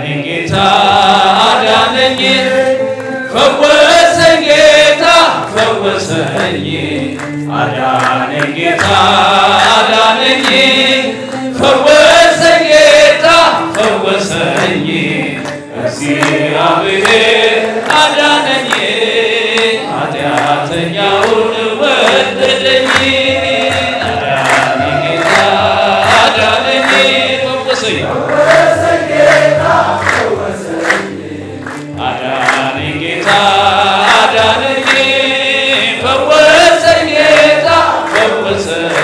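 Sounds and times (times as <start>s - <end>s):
crowd singing a hymn: 0.0s - 39.0s
rhythmic handclapping: 0.0s - 39.0s.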